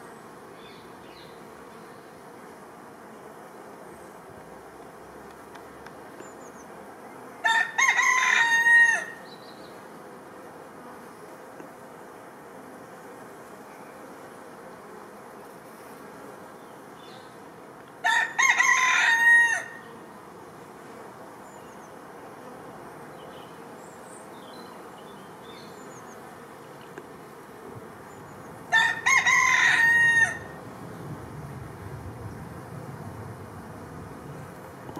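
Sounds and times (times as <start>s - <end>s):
honeybees humming: 0.0s - 34.9s
rooster crowing: 7.4s - 9.2s, 18.0s - 19.8s, 28.7s - 30.6s.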